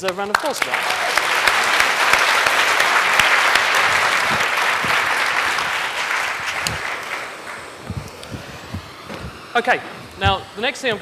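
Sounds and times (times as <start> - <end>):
audience applauding: 0.0 - 7.8.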